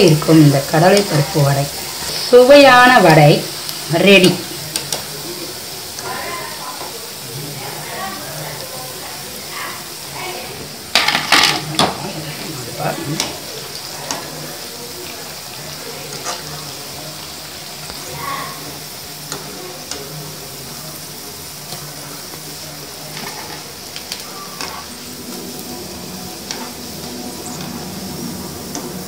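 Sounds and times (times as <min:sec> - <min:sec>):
fritters sizzling in hot oil: 0:00.0 - 0:29.0
skimmer scraping against pan: 0:23.1 - 0:29.0.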